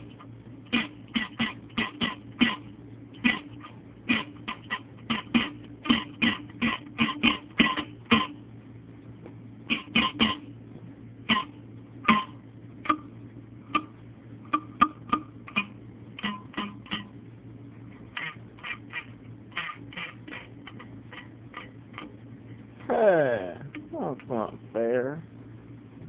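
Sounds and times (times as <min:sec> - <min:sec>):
beer can twanging notes: 0:00.0 - 0:08.4, 0:09.7 - 0:10.5, 0:11.2 - 0:17.3, 0:18.1 - 0:22.2.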